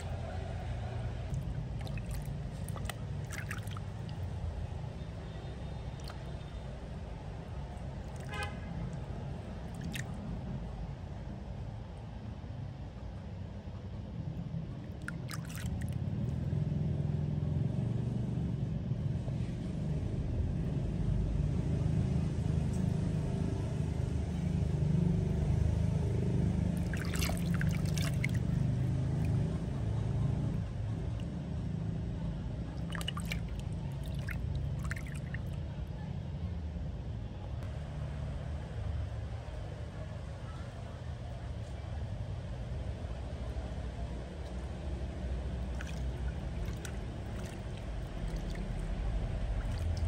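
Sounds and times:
steady low rumble: 0.0s - 50.0s
water splashing in basin: 1.3s - 4.4s, 5.8s - 6.5s, 7.9s - 10.2s, 14.9s - 16.0s, 26.6s - 31.2s, 32.6s - 35.7s, 45.4s - 50.0s.

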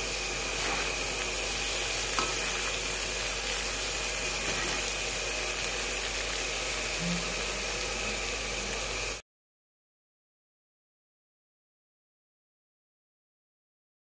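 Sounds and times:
food sizzling in a pan: 0.0s - 9.2s
spatula scraping a pan: 0.5s - 5.2s.

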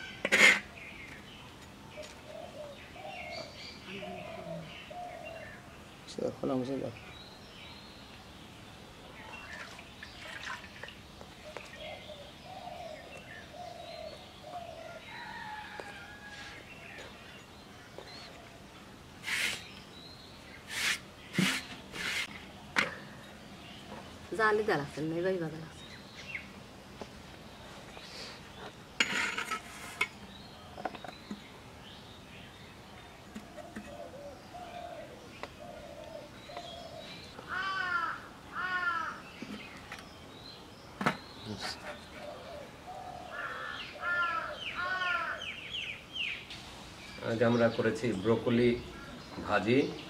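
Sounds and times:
birds chirping and calling: 0.0s - 50.0s
metal spatula scraping a pan: 0.2s - 0.7s, 29.0s - 30.1s.

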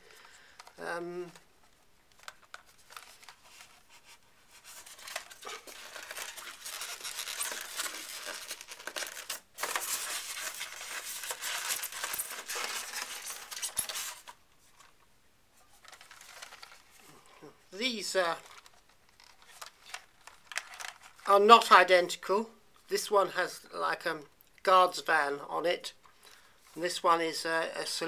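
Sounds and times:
packaging rustling and scraping: 0.0s - 15.0s, 15.6s - 17.1s, 18.2s - 21.3s.

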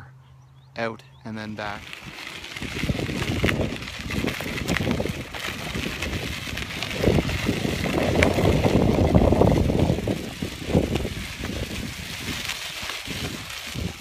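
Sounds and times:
bike tyres crunching on gravel: 1.3s - 14.0s
wind buffeting microphone: 1.6s - 14.0s.

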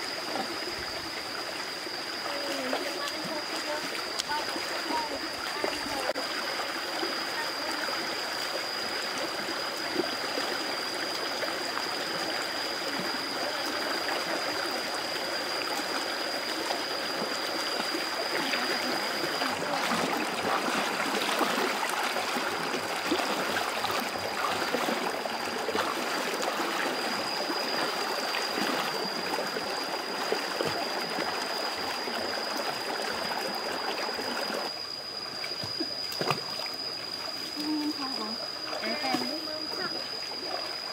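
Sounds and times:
stream running over stones: 0.0s - 40.9s
splashes from wading feet: 18.4s - 26.8s.

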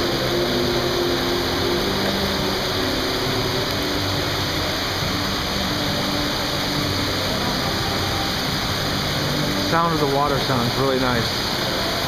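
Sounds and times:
waterfall splashing into pool: 0.0s - 12.0s.

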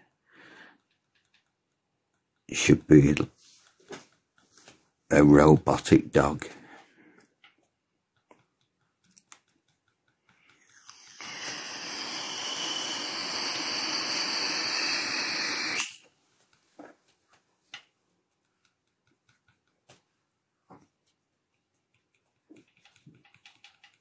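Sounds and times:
loud steady hiss: 10.8s - 16.0s.

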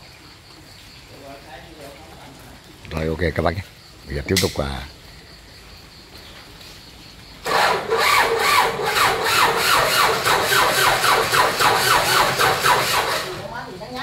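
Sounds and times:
tractor engine cranking: 7.4s - 13.6s.

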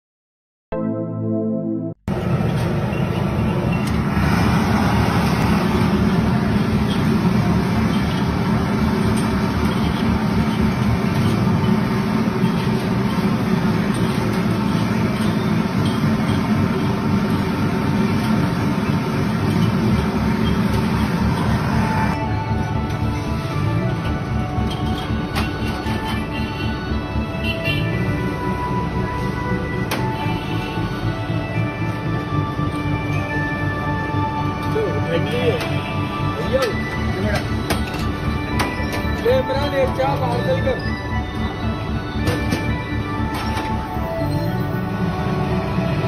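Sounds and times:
intro jingle: 0.7s - 2.2s
busy tea stall din: 2.1s - 46.0s
traffic noise: 2.1s - 46.0s.

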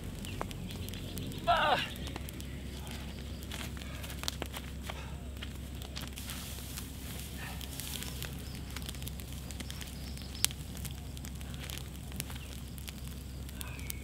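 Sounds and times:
bonfire crackling and popping: 0.0s - 14.0s.

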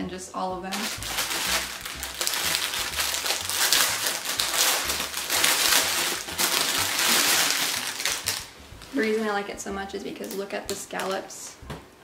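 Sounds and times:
plastic bag crinkling and rustling: 0.7s - 9.4s.

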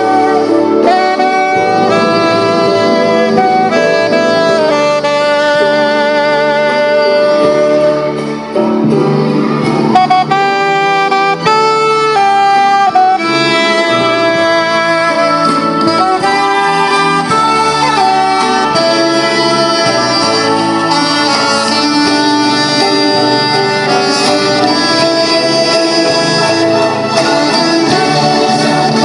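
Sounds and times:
sustained low accompaniment: 0.0s - 10.4s
saxophone melody: 0.0s - 29.0s.

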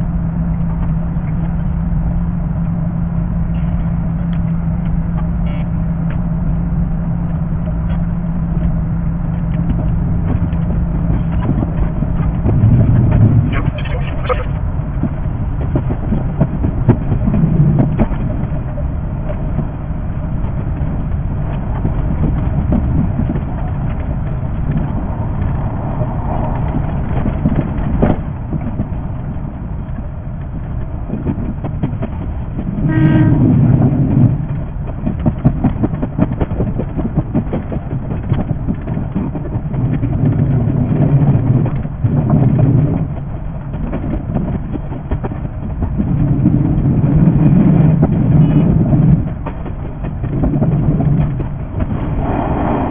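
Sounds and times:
wheels clicking over rail joints: 0.0s - 52.2s
train rumbling: 0.0s - 52.9s
train horn toot: 32.8s - 33.8s.

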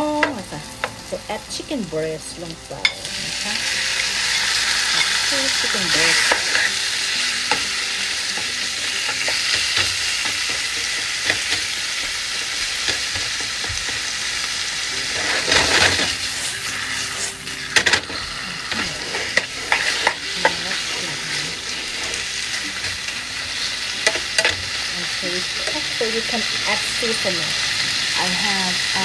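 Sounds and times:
chicken sizzling in frying pan: 0.0s - 29.0s
spatula scraping pan: 3.8s - 26.5s.

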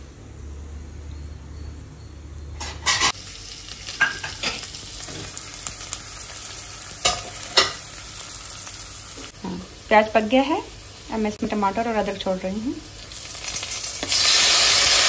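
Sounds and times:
onions sizzling in hot oil: 2.4s - 15.0s.

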